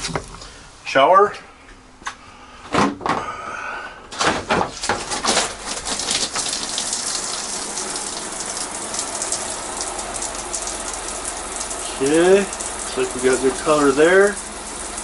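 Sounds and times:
shower head spraying: 5.8s - 15.0s.

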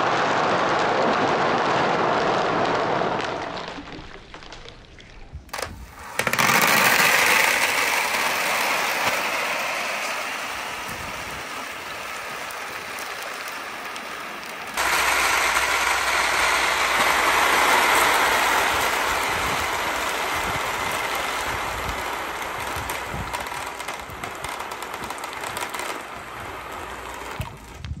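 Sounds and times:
glass marbles rattling down a board: 5.5s - 10.0s.

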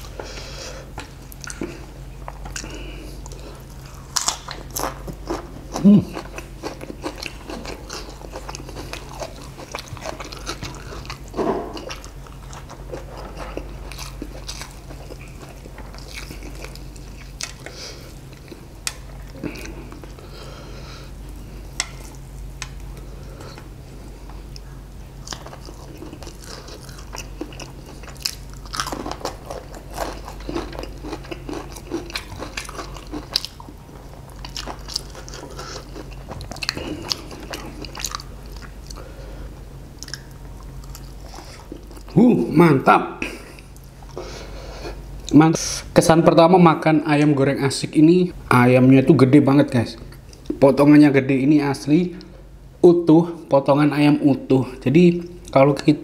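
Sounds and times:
crunching and chewing: 0.0s - 20.6s, 21.3s - 42.2s
faint low hum: 0.0s - 56.0s.

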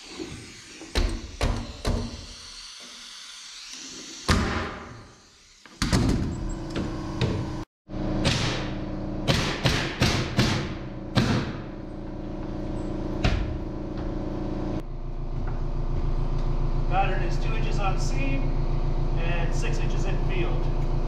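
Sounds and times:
nail gun firing: 9.3s - 11.6s.

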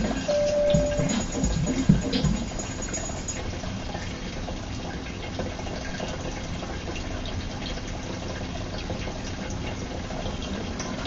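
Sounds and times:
water trickling and splashing: 0.0s - 11.0s.

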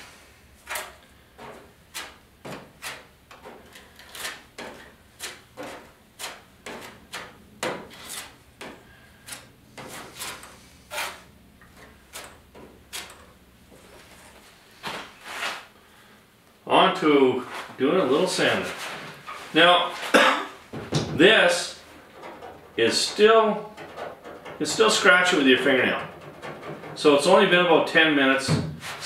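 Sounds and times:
plastic spreader scraping metal: 0.6s - 8.4s, 9.2s - 13.3s, 21.5s - 29.0s.

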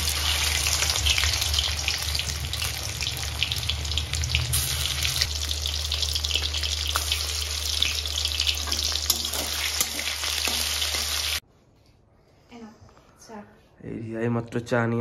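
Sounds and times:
chicken sizzling in hot oil: 0.0s - 11.4s
spatula stirring in metal pan: 8.6s - 11.0s.

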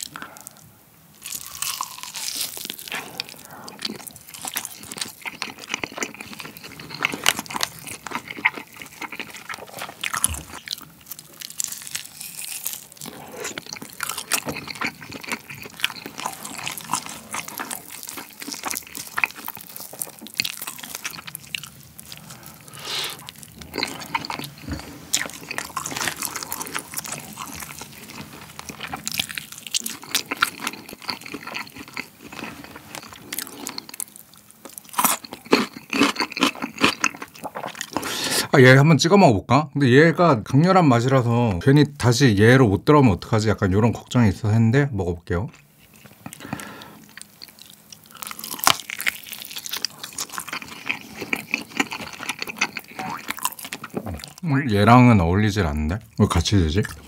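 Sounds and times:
chewing and biting chicken: 1.2s - 38.2s, 45.8s - 54.4s.

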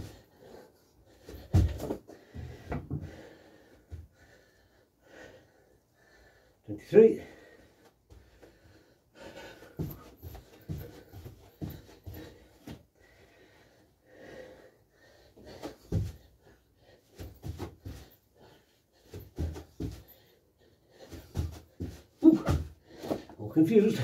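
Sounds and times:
man breathing hard: 0.0s - 23.4s
feet thudding on carpet: 1.3s - 3.1s, 9.8s - 12.8s, 21.0s - 23.2s.

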